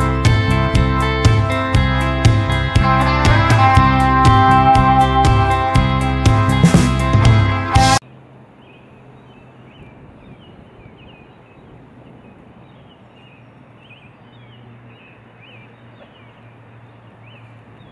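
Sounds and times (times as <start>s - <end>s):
low hum: 0.0s - 10.2s
high chirping calls: 8.6s - 17.9s.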